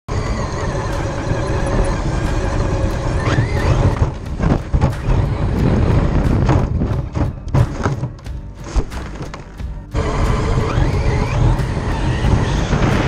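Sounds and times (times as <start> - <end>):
electric motor whining: 0.1 - 7.2, 9.2 - 13.0
wind and tyres rumbling: 0.1 - 13.0
toy truck tumbling knocks: 2.4 - 9.8.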